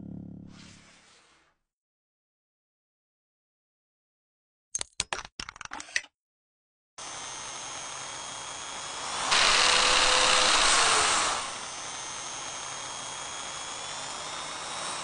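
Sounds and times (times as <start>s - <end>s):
drill bit cutting wood: 7.0s - 15.0s
power drill whining: 7.0s - 15.0s.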